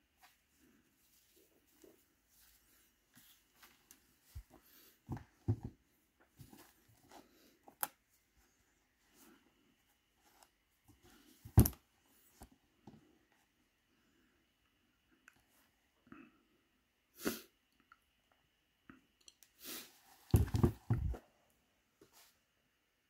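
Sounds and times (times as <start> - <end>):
rustling of shoes being handled: 0.0 - 13.1, 20.0 - 21.3.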